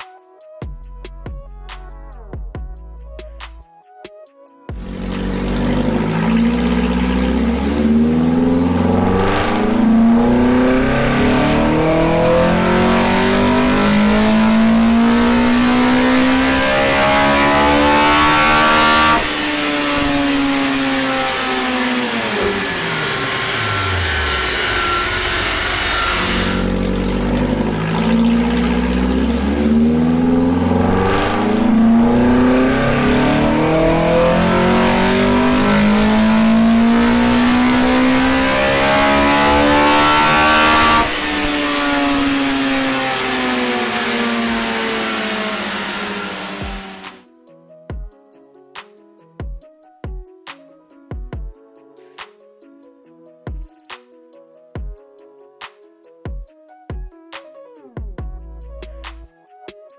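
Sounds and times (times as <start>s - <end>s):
engine revving at full throttle: 4.8s - 47.2s.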